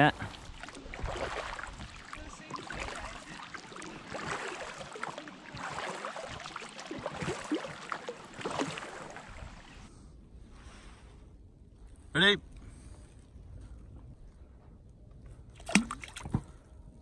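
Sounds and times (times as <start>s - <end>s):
oars splashing in water: 0.3s - 9.9s, 15.6s - 16.6s.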